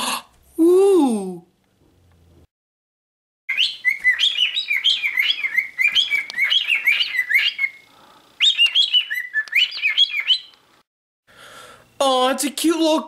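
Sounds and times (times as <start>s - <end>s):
cockatiel chirping: 3.5s - 10.6s.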